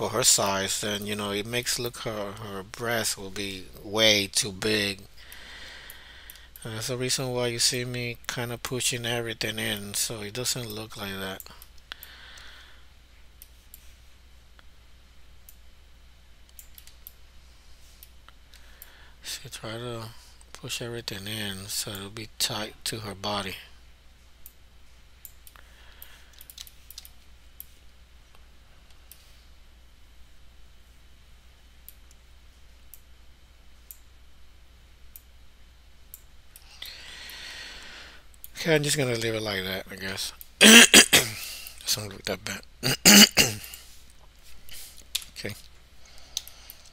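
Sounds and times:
low steady hum: 0:00.0 - 0:46.9
computer mouse clicks: 0:16.5 - 0:17.2, 0:25.2 - 0:27.8.

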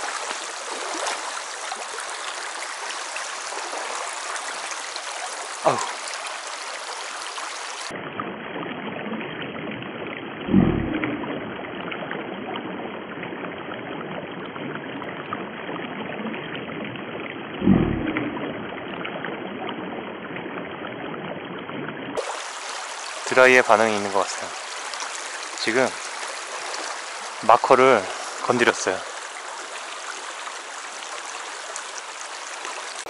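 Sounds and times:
creek water running over stones: 0:00.0 - 0:08.0, 0:22.2 - 0:33.0
low thumps: 0:10.5 - 0:11.8, 0:17.6 - 0:19.0.

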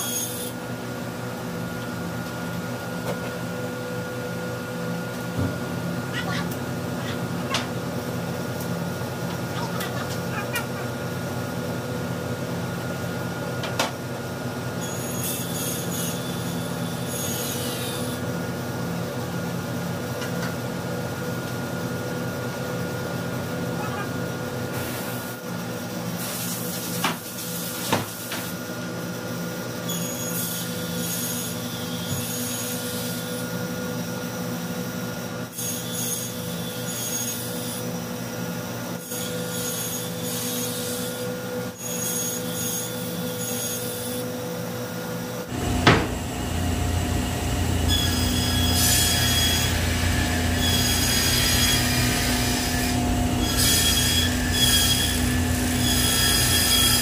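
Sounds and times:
saw whining cutting boards: 0:14.8 - 0:18.3, 0:39.0 - 0:57.0
table saw humming: 0:45.4 - 0:57.0.

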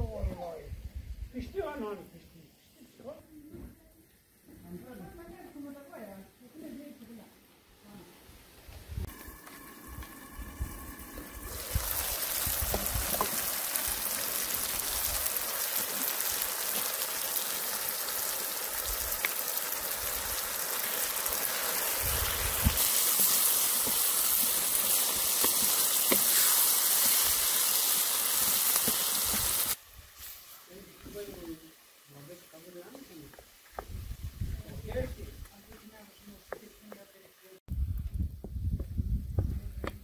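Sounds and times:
food sizzling in a pan: 0:08.1 - 0:35.0.

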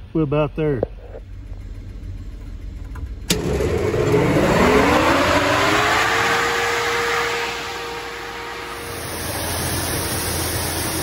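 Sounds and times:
motor hum spinning up: 0:03.0 - 0:11.0
loud even rushing noise: 0:03.4 - 0:11.0.

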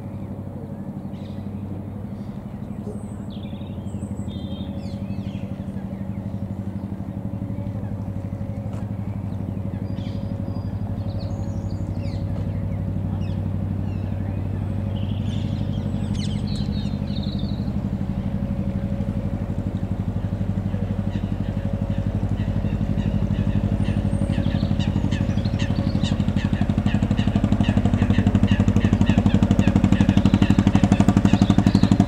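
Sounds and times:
engine running: 0:00.0 - 0:32.0
small birds chirping: 0:00.0 - 0:32.0.

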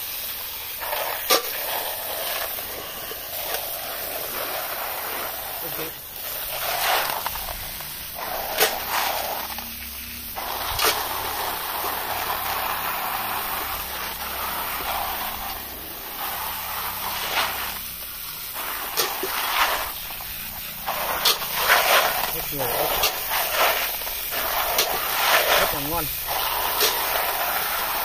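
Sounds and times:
hose water spraying: 0:00.0 - 0:28.0
snail shells rattling: 0:05.3 - 0:24.9.

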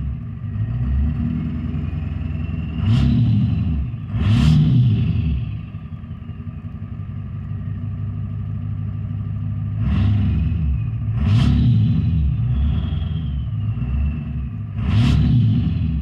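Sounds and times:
diesel engine idling and revving: 0:00.0 - 0:16.0
turbo whistle spooling down: 0:12.4 - 0:14.2.

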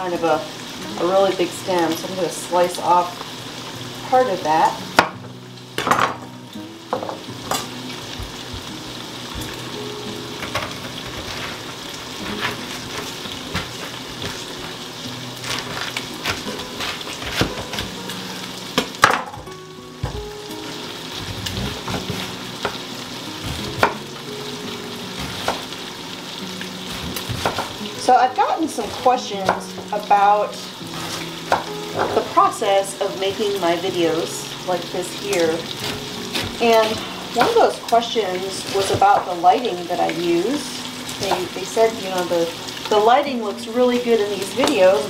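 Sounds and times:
bacon sizzling in a pot: 0:00.0 - 0:45.0
knife chopping cabbage on wood: 0:15.4 - 0:18.0, 0:21.2 - 0:22.8, 0:23.4 - 0:24.0, 0:25.2 - 0:25.7, 0:26.8 - 0:27.8, 0:35.8 - 0:36.6.

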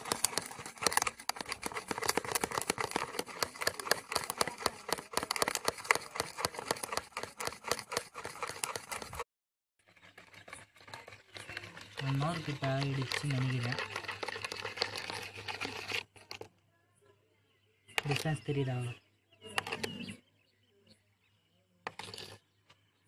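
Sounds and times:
spoon beating mixture in bowl: 0:00.0 - 0:09.2, 0:09.9 - 0:16.0.

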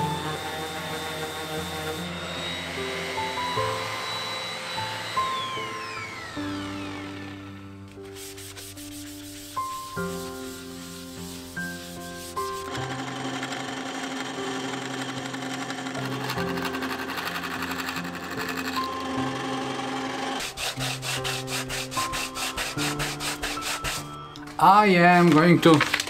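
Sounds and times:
hand sanding wood: 0:00.0 - 0:05.5, 0:08.0 - 0:13.5, 0:20.0 - 0:24.3
bandsaw cutting wood: 0:00.0 - 0:24.6
background music: 0:00.0 - 0:26.0.

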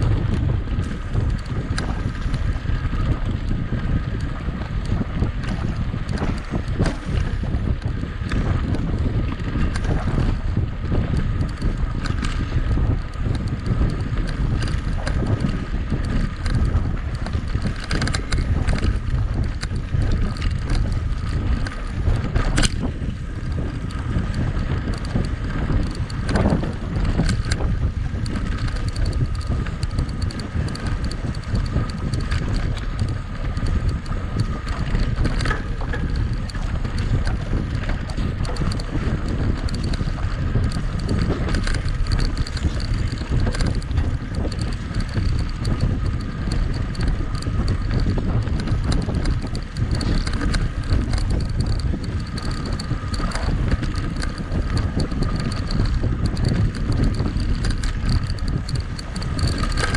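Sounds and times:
bike frame rattling: 0:00.0 - 0:59.9
bike tyres rolling: 0:00.0 - 0:59.9
wind rushing over microphone: 0:00.0 - 0:59.9.

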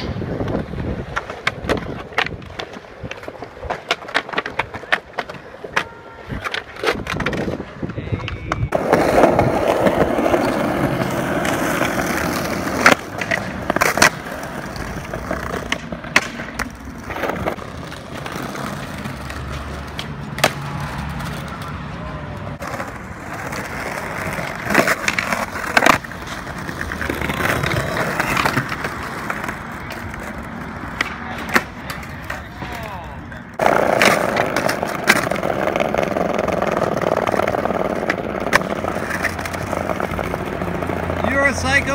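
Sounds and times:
skateboard clacks: 0:00.0 - 0:41.9
skateboard wheels rolling on concrete: 0:00.0 - 0:41.9.

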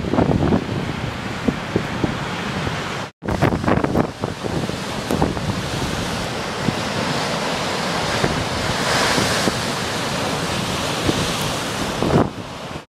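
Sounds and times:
wind buffeting microphone: 0:00.0 - 0:12.8
waves breaking on rocky shore: 0:00.0 - 0:12.9.

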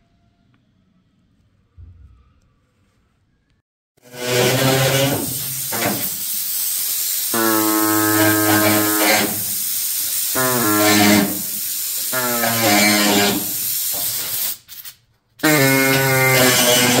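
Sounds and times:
reciprocating saw cutting sheet metal: 0:04.0 - 0:06.2, 0:07.2 - 0:14.1, 0:15.4 - 0:17.0
saw buzzing drone: 0:15.5 - 0:17.0.

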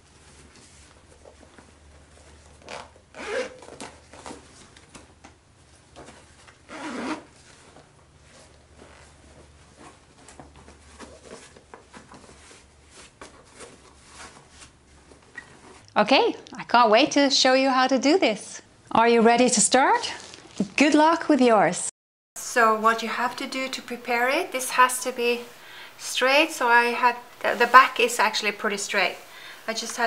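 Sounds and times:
fabric bag rubbing and rustling: 0:06.1 - 0:15.8, 0:22.6 - 0:29.8.

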